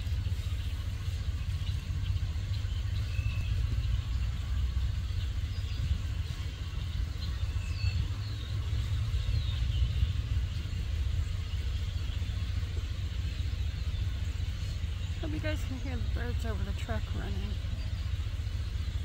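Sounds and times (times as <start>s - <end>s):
birds chirping and calling: 0.0s - 19.0s
truck engine idling: 0.0s - 19.0s.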